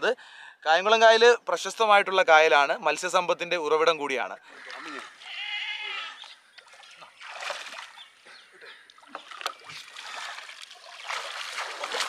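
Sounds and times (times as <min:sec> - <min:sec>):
water splashing and sloshing: 0:04.5 - 0:05.3, 0:06.2 - 0:12.0
high-pitched animal call: 0:04.7 - 0:06.3
sharp splash: 0:06.7 - 0:08.0, 0:09.2 - 0:12.0.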